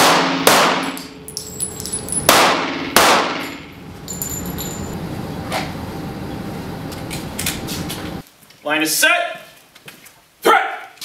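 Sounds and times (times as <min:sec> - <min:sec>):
pistol shots echoing: 0:00.0 - 0:01.1, 0:01.8 - 0:03.6
brass casings tinkling on concrete: 0:01.1 - 0:02.4, 0:03.4 - 0:05.0.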